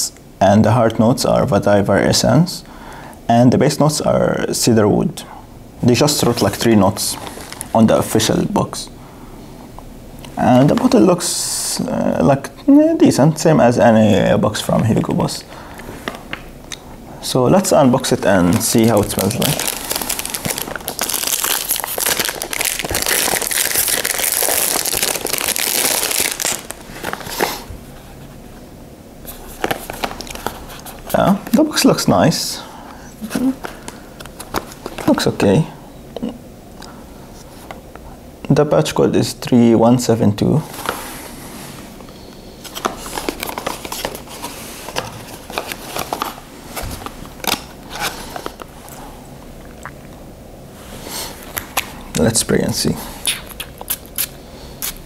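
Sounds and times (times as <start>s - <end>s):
plastic wrapping crinkling: 17.7s - 27.7s, 29.3s - 31.6s, 33.6s - 35.3s, 42.6s - 49.0s.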